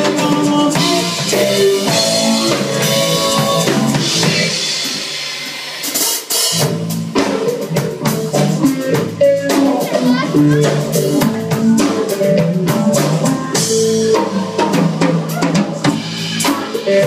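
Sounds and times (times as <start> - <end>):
heavy drum hits: 0.0 - 16.8
rock band playing: 0.0 - 17.0.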